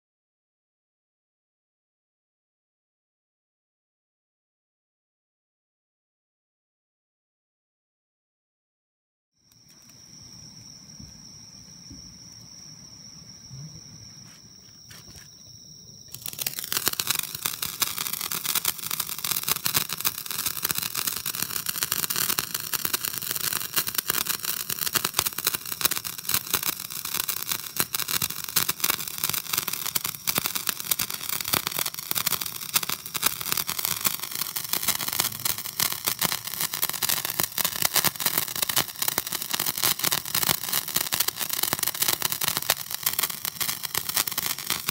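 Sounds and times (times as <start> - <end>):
faint high whine: 9.4 - 18.9
sparkler crackling and fizzing: 9.5 - 10.6, 16.1 - 44.9.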